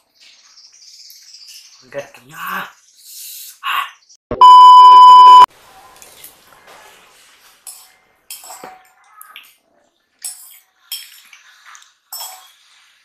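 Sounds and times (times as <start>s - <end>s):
electronic beep: 4.3s - 5.5s
cutlery clinking in ceramic bowl: 7.6s - 9.0s, 10.2s - 11.4s, 12.1s - 12.8s.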